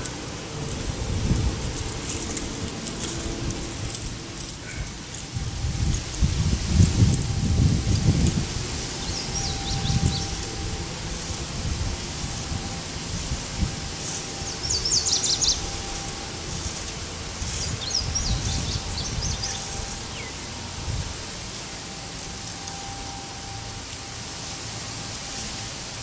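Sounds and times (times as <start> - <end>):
faint steady hum: 0.0 - 26.0
wind on microphone: 0.0 - 26.0
bird chirping: 8.6 - 11.4, 12.2 - 24.1.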